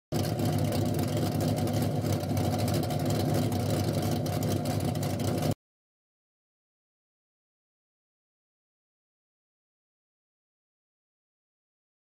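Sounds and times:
car engine idling: 0.1 - 5.6.

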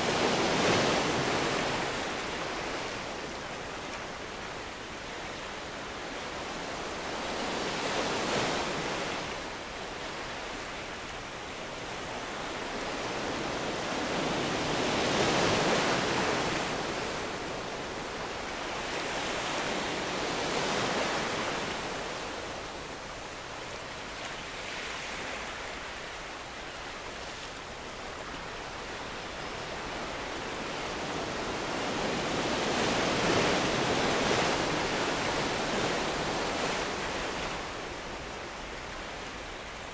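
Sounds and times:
waves breaking on beach: 0.0 - 39.9.

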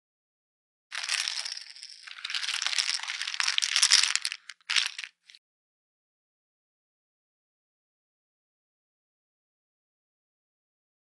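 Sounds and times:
poker chips clattering: 0.9 - 5.4.

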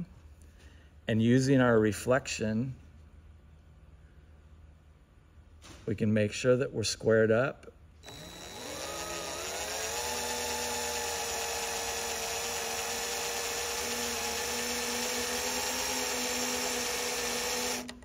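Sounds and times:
power drill drilling metal: 8.0 - 18.0.

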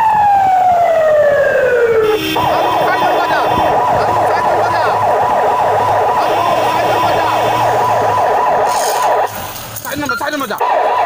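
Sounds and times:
electronic siren yelping: 0.0 - 11.0.

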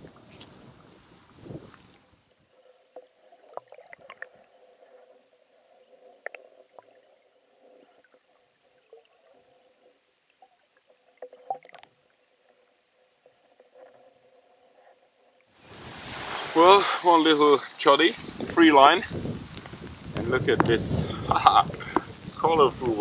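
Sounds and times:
dull underwater hum: 0.0 - 23.0
soft underwater clicks and knocks: 0.1 - 5.1, 5.8 - 7.1, 7.8 - 15.5.

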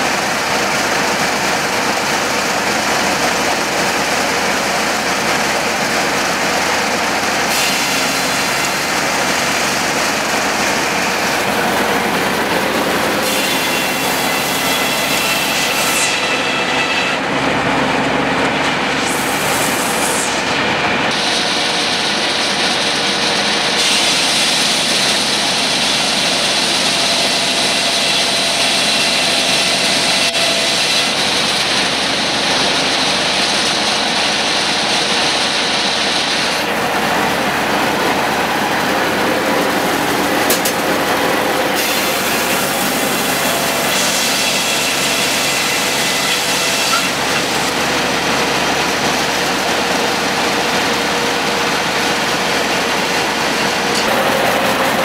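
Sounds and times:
circular sawmill cutting log: 0.0 - 55.0.

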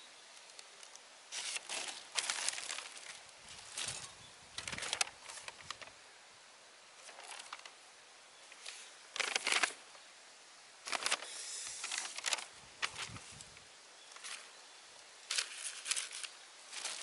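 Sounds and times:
plastic and paper crinkling: 0.8 - 6.0, 7.0 - 7.8, 8.5 - 9.8, 10.8 - 13.5, 14.1 - 14.6, 15.3 - 17.0.

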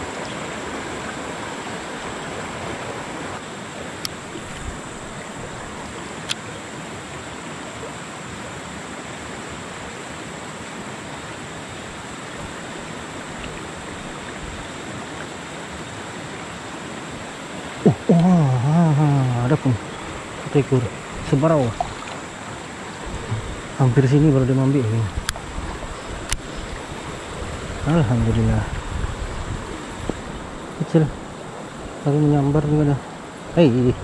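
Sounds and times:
river rushing over rocks: 0.0 - 34.0
faint sharp clicks: 26.2 - 26.5.

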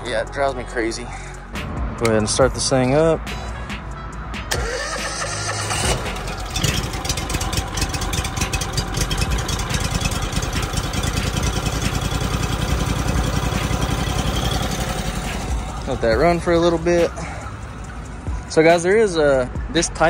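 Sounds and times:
gasoline engine starting and idling: 4.4 - 19.3.

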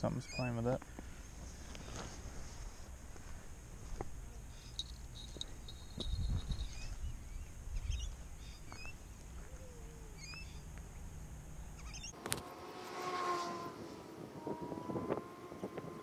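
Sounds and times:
bird chirps and clicks: 10.2 - 10.9.

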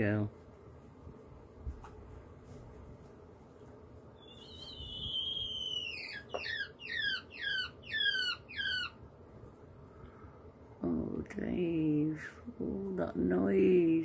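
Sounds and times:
quail squealing calls: 4.2 - 9.0.

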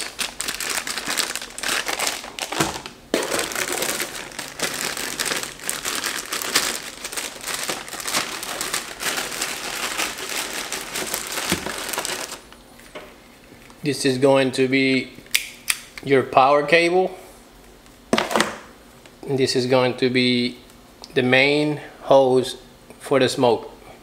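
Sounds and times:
plastic bags crinkling: 0.0 - 12.6.

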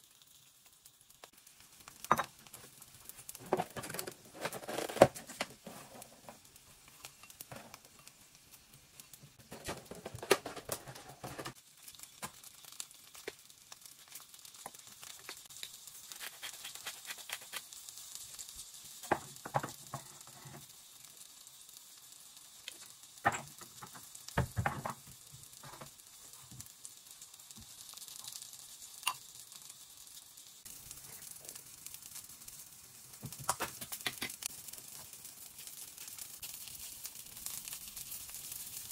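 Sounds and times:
containers and utensils clicking: 9.4 - 11.6, 33.3 - 34.4.

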